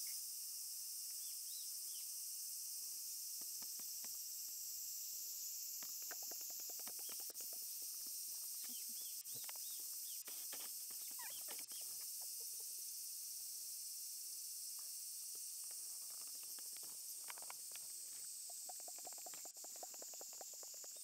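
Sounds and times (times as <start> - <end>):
steady high hiss: 0.0 - 19.9
small birds chirping: 5.8 - 12.8, 15.7 - 21.0.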